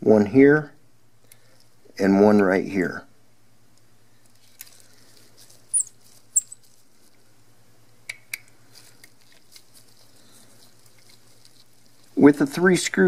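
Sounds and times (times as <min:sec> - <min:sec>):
screwdriver squeaks: 0:05.7 - 0:06.6.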